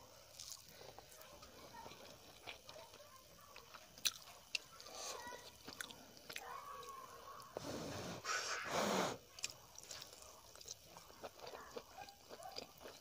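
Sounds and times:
chewing and biting: 0.3s - 6.5s, 9.3s - 13.0s.

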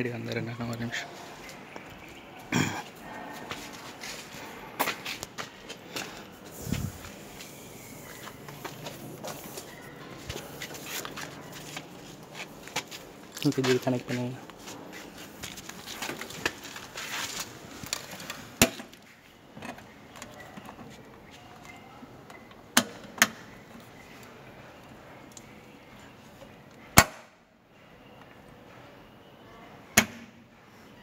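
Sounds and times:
handling rustle: 6.4s - 18.6s.

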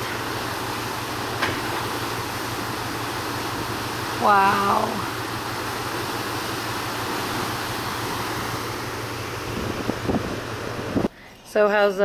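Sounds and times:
ship wake churning: 0.0s - 11.1s
low steady hum: 0.0s - 12.0s
wind blowing across microphone: 9.5s - 11.1s.

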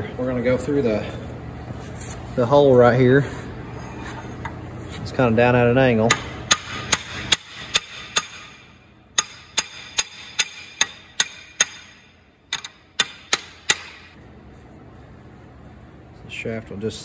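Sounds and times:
hammer striking steel rod: 6.1s - 14.1s.

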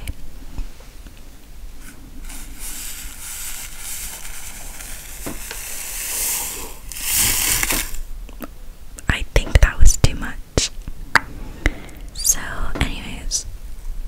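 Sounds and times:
powder pouring into mug: 2.2s - 8.0s.

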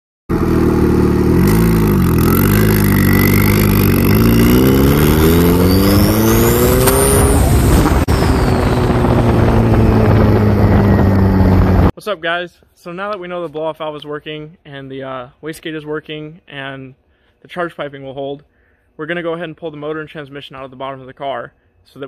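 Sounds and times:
car engine accelerating hard: 0.3s - 11.9s
turbo whine: 0.3s - 11.9s.

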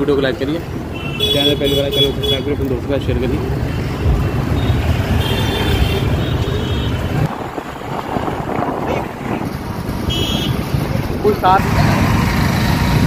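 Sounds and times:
street traffic: 0.0s - 13.0s
wind rumble on microphone: 6.9s - 13.0s.

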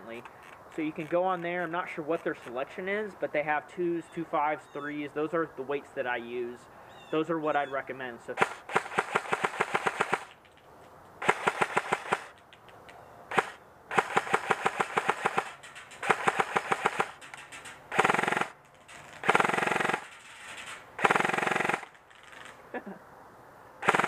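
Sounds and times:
airsoft gun single shots: 8.4s - 10.3s, 11.2s - 12.4s, 13.3s - 17.2s
airsoft gun full-auto bursts: 8.4s - 10.4s, 11.2s - 12.4s, 13.3s - 17.2s, 17.9s - 18.6s, 19.2s - 20.2s, 21.0s - 22.0s.

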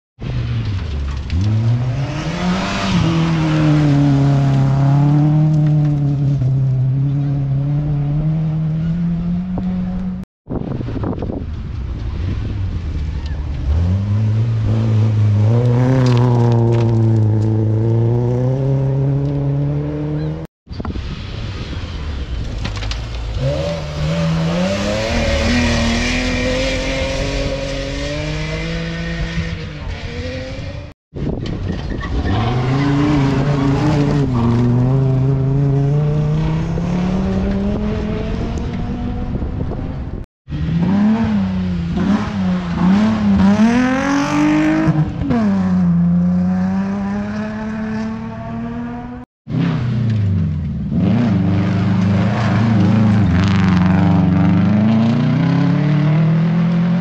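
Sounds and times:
rally car engine revving: 0.2s - 10.2s, 12.0s - 20.5s, 22.7s - 57.0s.

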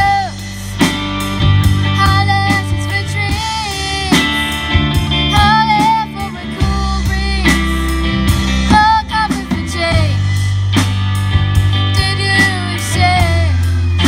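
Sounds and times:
girl singing: 0.0s - 0.4s, 2.0s - 4.6s, 5.3s - 7.8s, 8.7s - 10.3s, 11.9s - 13.7s
drum kit: 0.0s - 14.0s
electric bass: 0.0s - 14.0s
electric guitar: 0.0s - 14.0s.

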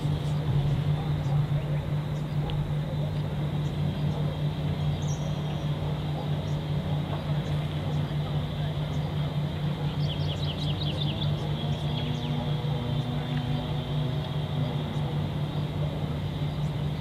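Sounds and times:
low mechanical hum: 0.0s - 17.0s
bird chirping: 3.6s - 8.2s, 9.8s - 13.2s.

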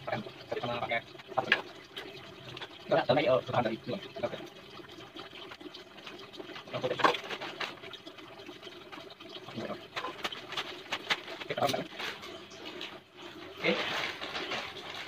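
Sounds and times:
plastic bag crinkling and rustling: 6.5s - 8.0s, 9.9s - 15.0s.

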